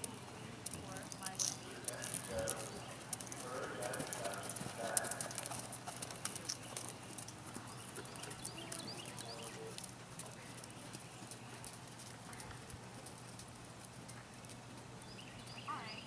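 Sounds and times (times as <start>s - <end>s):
horse hooves trotting on sand: 0.0s - 16.0s.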